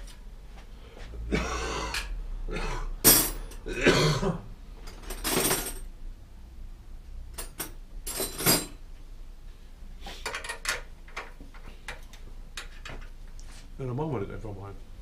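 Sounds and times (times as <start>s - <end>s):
metal tools clinking: 4.8s - 5.9s, 7.4s - 8.8s.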